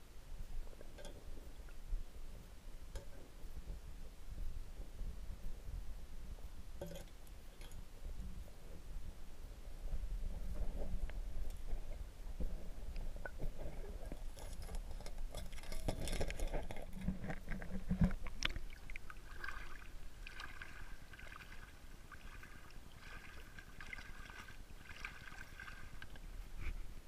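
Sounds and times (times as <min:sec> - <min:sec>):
water sloshing and splashing: 0:13.4 - 0:26.3.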